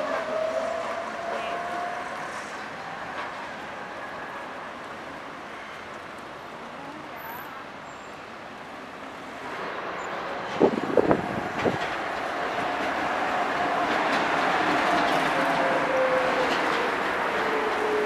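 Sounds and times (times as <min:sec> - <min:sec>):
city traffic noise: 0:00.0 - 0:18.0
tram approaching: 0:00.0 - 0:18.0
tram whine: 0:00.0 - 0:18.0
tram wheels clunking on rails: 0:08.5 - 0:18.0.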